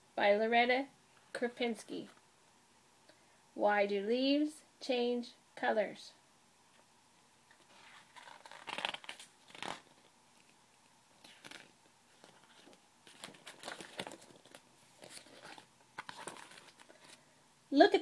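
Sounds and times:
paper pages turning: 7.5 - 10.6, 11.2 - 17.2.

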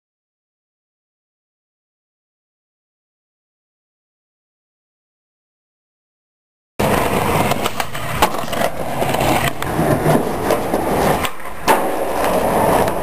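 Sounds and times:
skateboard clack: 6.8 - 13.0
skateboard scraping a ledge: 6.8 - 13.0
skateboard wheels rolling: 6.8 - 13.0.

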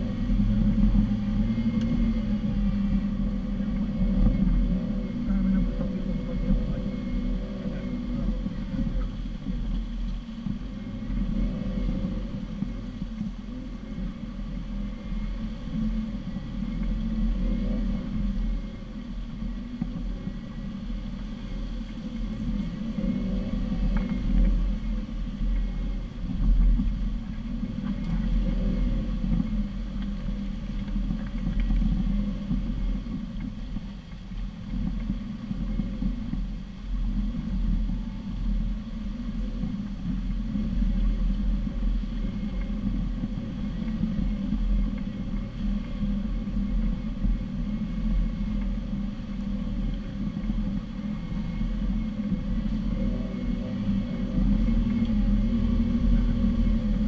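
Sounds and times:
engine low rumble: 0.0 - 57.0.

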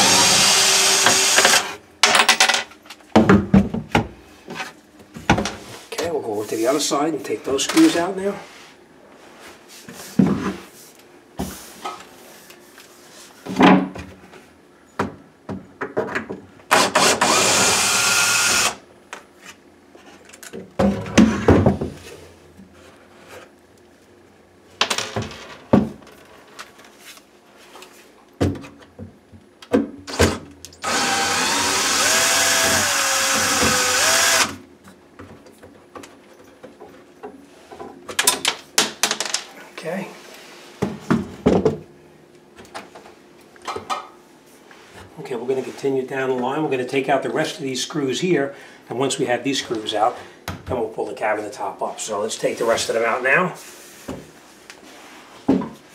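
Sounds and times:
power drill running: 0.0 - 1.8, 16.7 - 18.8, 30.8 - 34.6.

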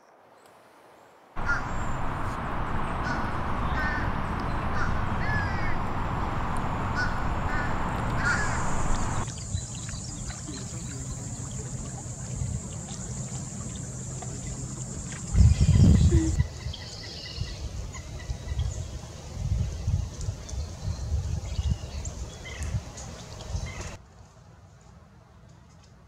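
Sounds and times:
loud steady rushing noise: 1.4 - 9.3
short bird calls: 1.4 - 9.3
thin high steady whine: 1.4 - 9.3.

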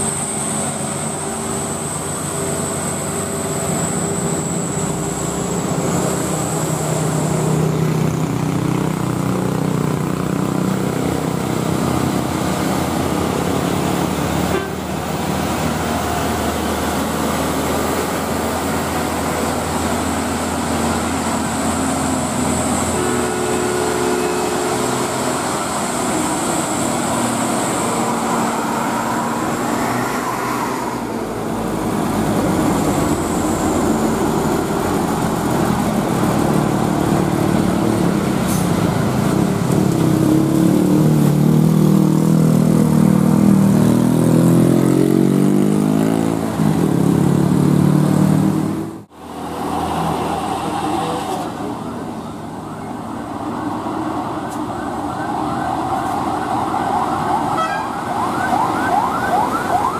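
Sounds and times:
truck engine revving: 0.0 - 52.3
heavy truck diesel engines labouring: 0.0 - 59.9.

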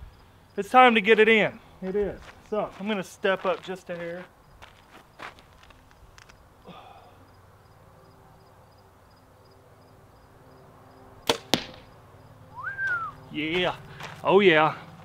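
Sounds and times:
arrow striking target: 11.2 - 11.9.

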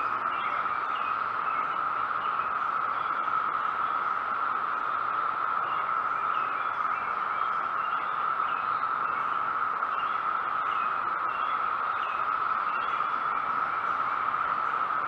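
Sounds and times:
faint bird chirps: 0.0 - 5.0
cicadas droning: 0.0 - 15.0.

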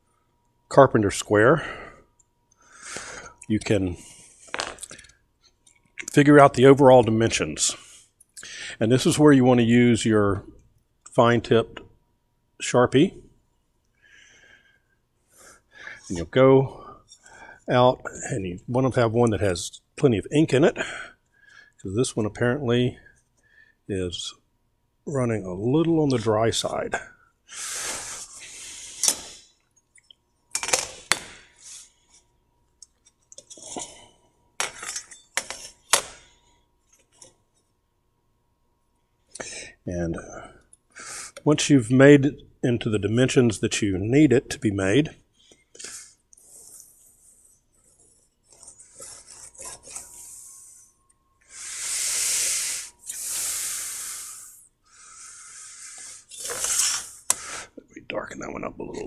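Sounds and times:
steel rule scraping on metal: 47.4 - 50.9, 56.3 - 57.2.

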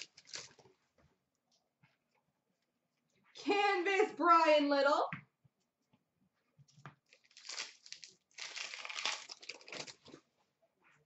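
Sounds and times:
foil wrapper crinkling and tearing: 0.0 - 0.6, 7.1 - 10.2.

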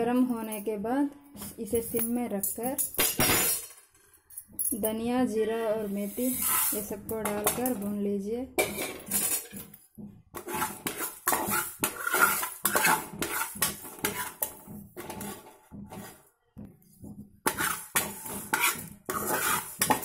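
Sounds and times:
metal spoon scraping metal pan: 5.5 - 7.9, 8.6 - 9.5, 10.4 - 16.2, 17.5 - 20.0.

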